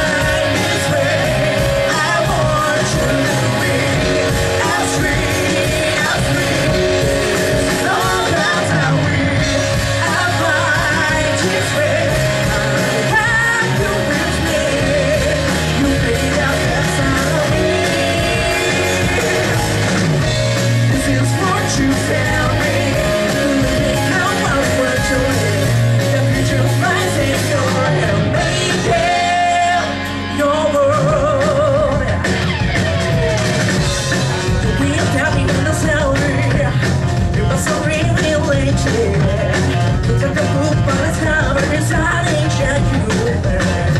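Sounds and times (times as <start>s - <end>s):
singer singing with vibrato: 0.0s - 33.5s
rock band playing live: 0.0s - 43.9s.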